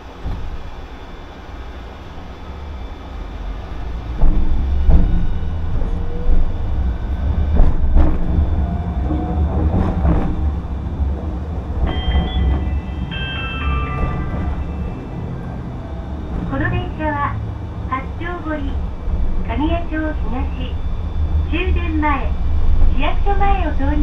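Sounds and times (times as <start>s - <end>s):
streetcar rumbling: 0.0s - 24.0s
wheels clanking on track: 0.0s - 24.0s
high steady tones: 10.5s - 23.8s.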